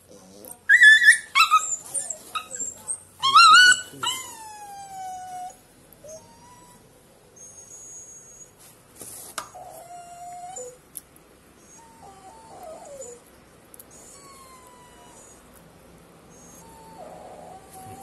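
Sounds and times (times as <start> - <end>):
dog whimpering: 0.1 - 8.6, 9.5 - 10.8, 11.6 - 13.2, 13.9 - 15.5, 16.3 - 18.0.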